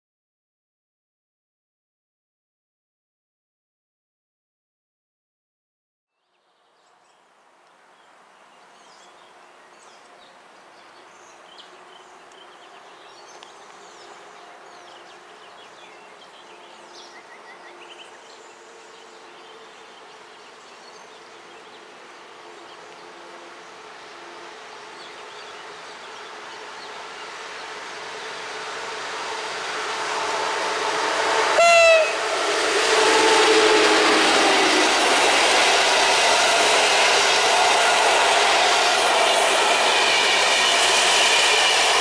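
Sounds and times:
train rushing noise: 0:11.1 - 0:42.0.

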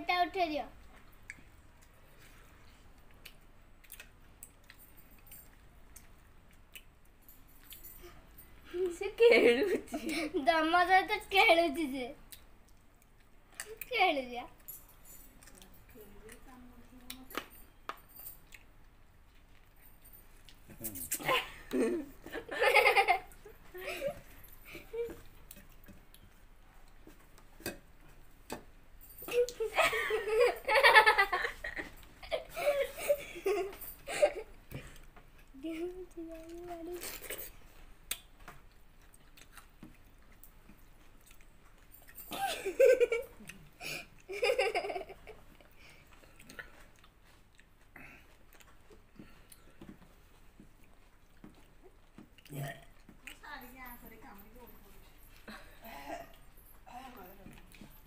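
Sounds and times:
chewing food: 0:00.8 - 0:07.8, 0:14.5 - 0:21.0, 0:24.3 - 0:28.8, 0:34.6 - 0:42.2, 0:45.4 - 0:55.6, 0:57.4 - 0:58.0
people laughing and giggling: 0:09.2 - 0:10.5, 0:21.2 - 0:25.2, 0:29.3 - 0:34.6, 0:42.3 - 0:45.4.

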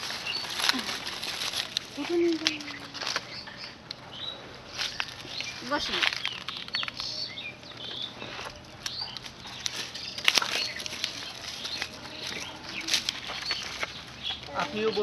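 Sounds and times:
small birds chirping: 0:00.0 - 0:15.0
sharp clicks and crackles: 0:04.8 - 0:07.5.

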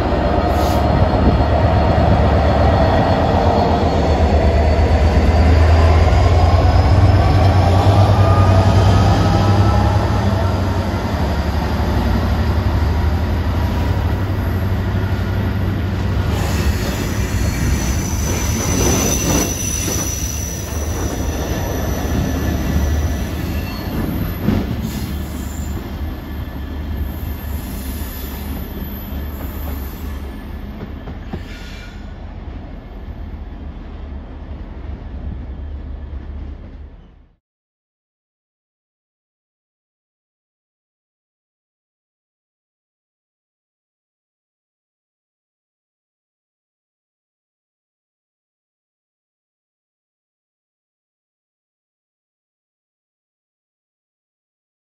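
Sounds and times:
wagons rumbling on rails: 0:00.0 - 0:37.3
train engine hum: 0:00.0 - 0:37.4
wheel squeal: 0:16.4 - 0:20.9, 0:22.6 - 0:30.5.

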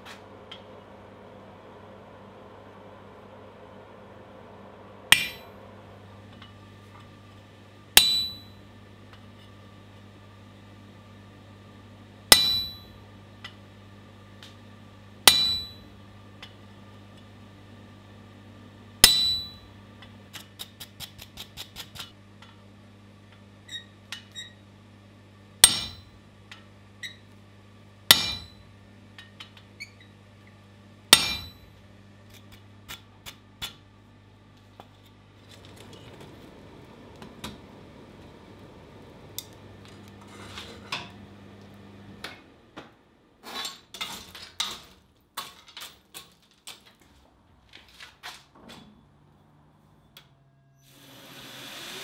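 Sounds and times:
steady low hum: 0:00.0 - 0:20.3, 0:24.8 - 0:43.5
hammer strikes on metal punch: 0:05.1 - 0:05.5, 0:08.0 - 0:08.6, 0:12.3 - 0:13.0, 0:15.3 - 0:15.9, 0:19.0 - 0:19.7, 0:25.6 - 0:26.1, 0:28.1 - 0:28.6, 0:31.1 - 0:31.7.

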